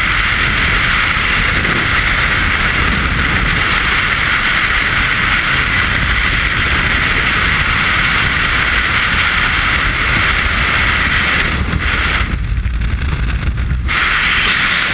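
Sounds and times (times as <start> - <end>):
freefall wind rushing: 0.0 - 14.9
low buffeting rumble: 0.0 - 14.9.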